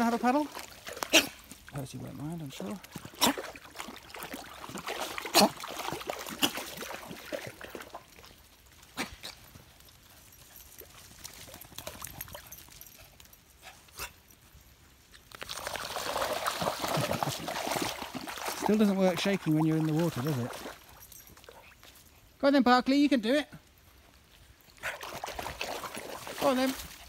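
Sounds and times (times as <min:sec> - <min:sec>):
dogs splashing in water: 0:00.0 - 0:09.5, 0:15.3 - 0:21.8, 0:24.8 - 0:27.0.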